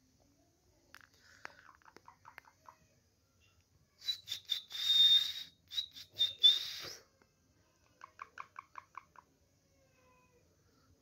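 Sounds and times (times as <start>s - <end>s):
parakeet chirps: 8.0s - 9.3s.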